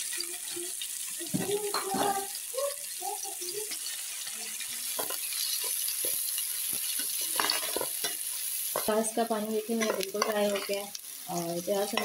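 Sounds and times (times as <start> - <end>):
onions sizzling in hot oil: 0.0 - 12.0
metal spoon scraping a pan: 3.6 - 12.0.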